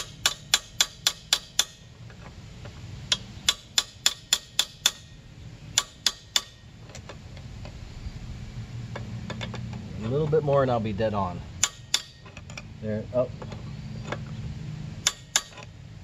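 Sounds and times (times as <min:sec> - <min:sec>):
hammer tapping metal wrench: 0:03.1 - 0:05.1.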